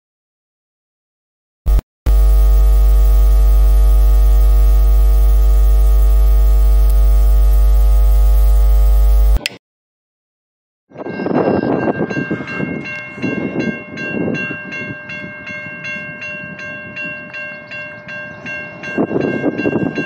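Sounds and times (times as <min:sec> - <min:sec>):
electrical hum: 0:01.7 - 0:09.4.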